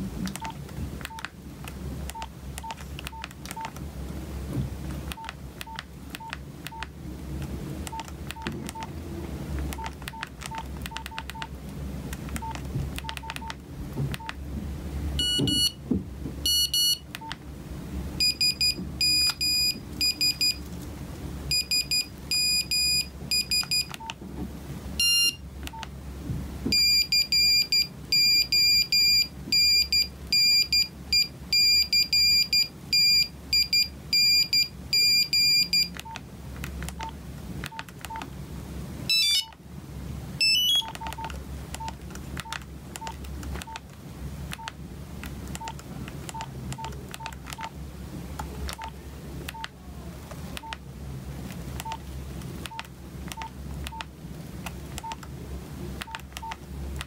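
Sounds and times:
phone keypad beeps: 0:00.3 - 0:01.3, 0:02.1 - 0:03.8, 0:05.1 - 0:06.9, 0:07.9 - 0:08.9, 0:09.7 - 0:11.5, 0:12.4 - 0:13.6, 0:14.2 - 0:14.4, 0:15.2 - 0:15.8, 0:16.4 - 0:17.4, 0:18.2 - 0:20.6, 0:21.5 - 0:24.2, 0:25.0 - 0:25.9, 0:26.7 - 0:36.2, 0:37.7 - 0:38.3, 0:39.1 - 0:39.6, 0:40.4 - 0:43.8, 0:44.5 - 0:44.8, 0:45.6 - 0:47.7, 0:48.7 - 0:48.9, 0:49.5 - 0:49.7, 0:50.6 - 0:50.8, 0:51.8 - 0:52.0, 0:52.6 - 0:54.1, 0:55.0 - 0:55.2, 0:56.0 - 0:56.6
buzzy electronic alert beeps: 0:15.2 - 0:15.8, 0:18.2 - 0:20.6, 0:25.0 - 0:25.4, 0:39.1 - 0:39.5, 0:40.4 - 0:41.0.

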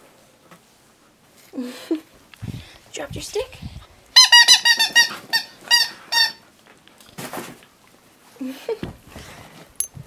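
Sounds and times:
squeaky toy squeaks: 0:04.2 - 0:06.4.

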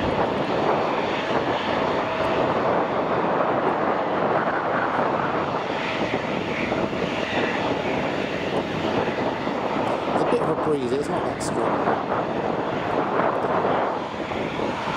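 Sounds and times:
jet engines running: 0:00.0 - 0:14.9.

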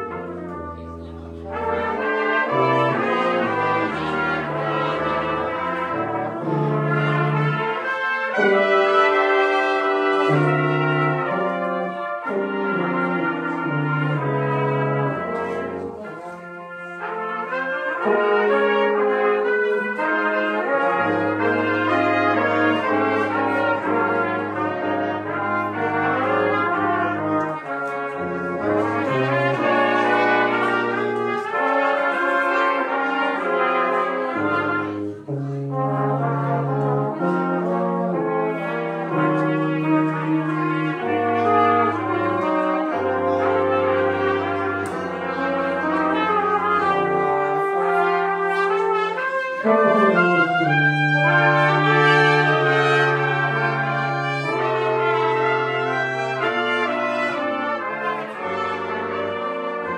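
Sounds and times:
brass ensemble playing: 0:00.0 - 0:59.9
trumpet melody: 0:00.0 - 0:59.9
tuba low bass notes: 0:00.0 - 0:59.9.

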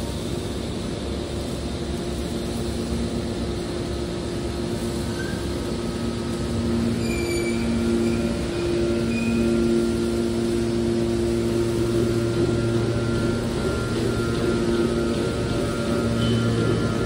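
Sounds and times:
faint high squeals: 0:05.1 - 0:05.6, 0:06.8 - 0:09.9
baler motor hum: 0:05.6 - 0:17.0.

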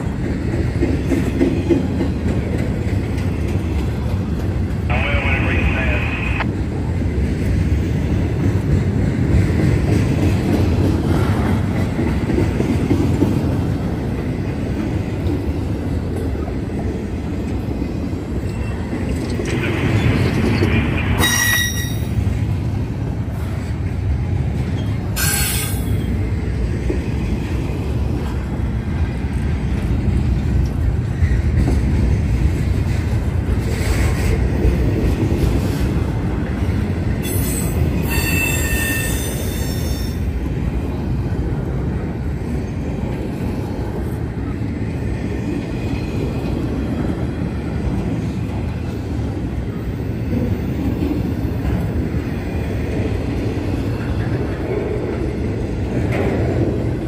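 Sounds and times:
freight train cars rumbling past: 0:00.0 - 0:57.0
high-pitched wheel squeals: 0:21.2 - 0:22.1, 0:37.2 - 0:40.2.

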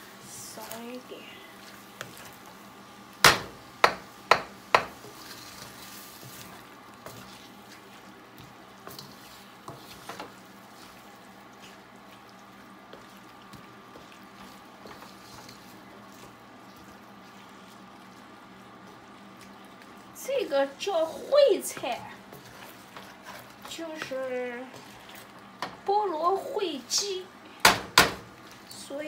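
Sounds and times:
food sizzling in wok: 0:00.0 - 0:29.0
spatula stirring and scraping: 0:00.2 - 0:27.7, 0:28.3 - 0:29.0
wooden spatula knocking wok: 0:03.2 - 0:05.2, 0:27.6 - 0:28.3.

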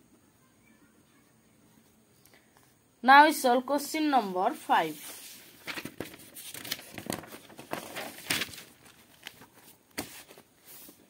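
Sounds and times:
paper rustling and crinkling: 0:04.7 - 0:11.0.

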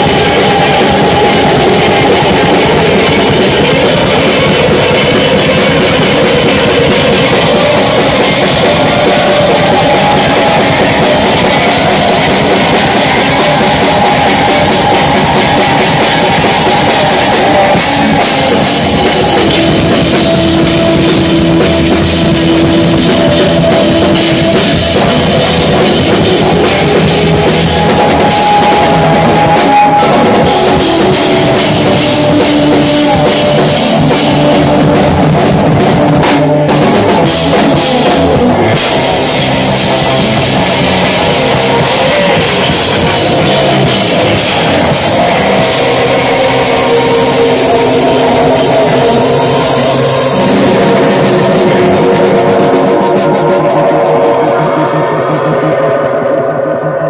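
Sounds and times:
jazz-rock band playing: 0:00.0 - 0:54.8.

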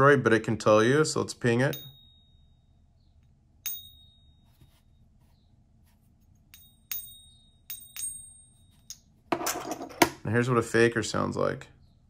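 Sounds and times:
coin ping ringing: 0:01.6 - 0:02.7, 0:03.6 - 0:04.6, 0:06.5 - 0:09.8.

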